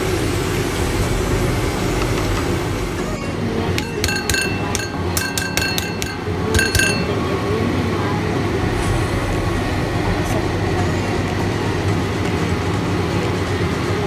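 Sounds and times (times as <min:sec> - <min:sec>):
light ringing clinks: 0:03.8 - 0:07.2.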